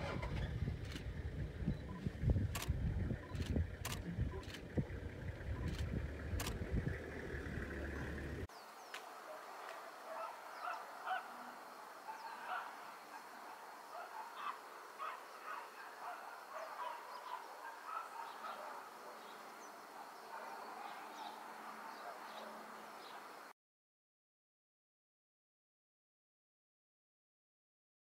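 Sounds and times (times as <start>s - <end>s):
wind rumbling on microphone: 0.0s - 8.4s
chorus of short bird calls: 0.3s - 23.5s.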